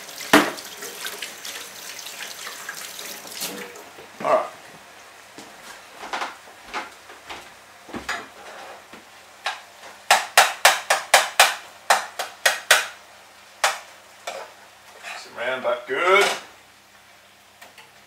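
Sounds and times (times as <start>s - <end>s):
utensil knocking on frying pan: 9.5s - 13.0s, 13.6s - 14.4s.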